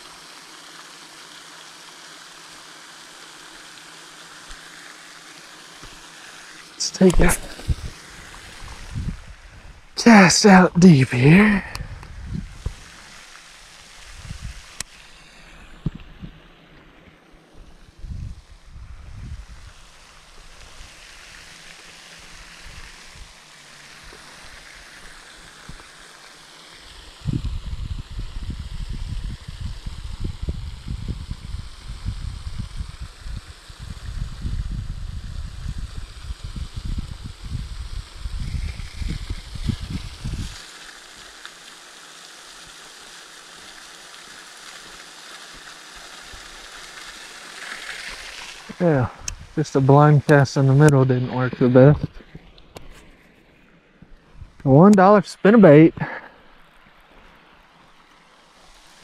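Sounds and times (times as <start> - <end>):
water hissing: 0.0 - 59.0
wind buffeting microphone: 7.1 - 10.0, 11.7 - 12.9, 14.0 - 14.7, 17.9 - 19.8, 27.2 - 40.6, 49.0 - 49.6.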